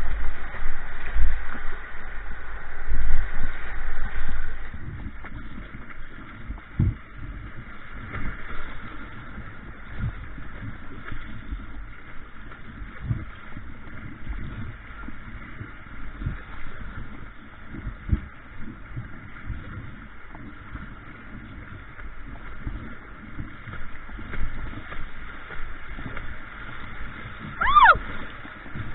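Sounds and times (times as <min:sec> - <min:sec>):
river water rushing: 0:27.6 - 0:28.4.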